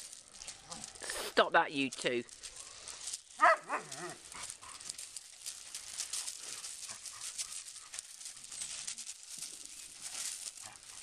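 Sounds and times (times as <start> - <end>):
puppies scuffling on gravel: 0.0 - 11.0.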